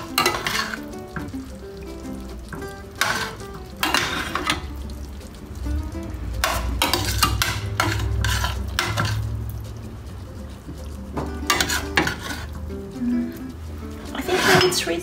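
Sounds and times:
metal tongs scraping a pot: 0:00.0 - 0:01.3, 0:02.5 - 0:04.7, 0:06.4 - 0:09.4, 0:11.3 - 0:12.6, 0:13.8 - 0:15.0.

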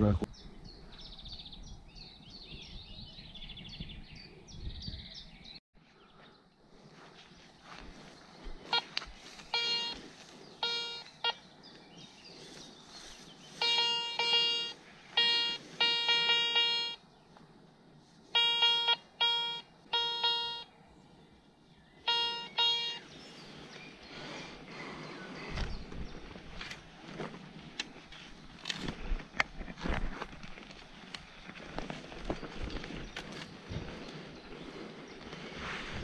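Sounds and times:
metal detector beeping: 0:08.6 - 0:11.5, 0:13.5 - 0:17.0, 0:18.3 - 0:20.7, 0:22.0 - 0:23.1.

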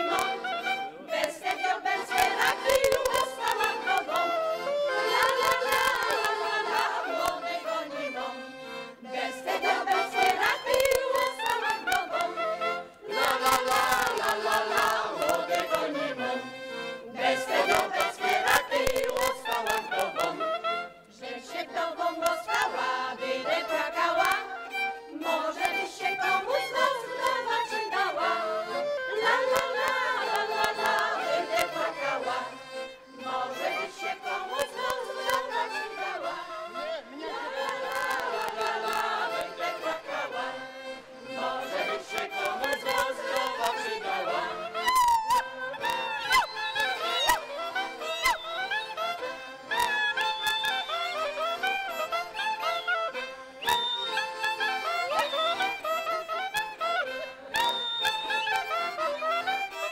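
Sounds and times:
mixed choir singing: 0:00.0 - 0:44.8
accordion: 0:00.0 - 0:59.9
fiddle: 0:00.0 - 0:59.9.

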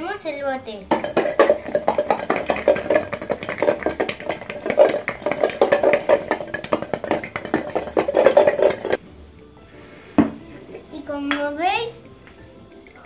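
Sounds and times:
garlic rattling in metal container: 0:00.9 - 0:09.0.

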